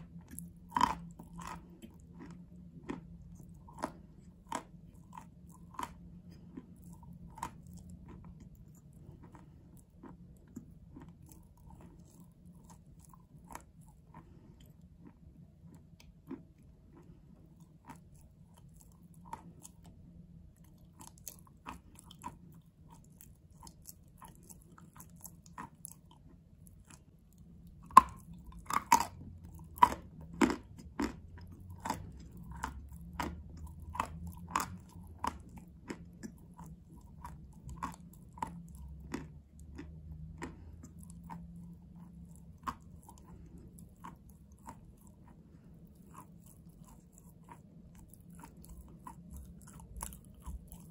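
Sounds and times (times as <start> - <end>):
chalk crunching in mouth: 20.6 - 50.9.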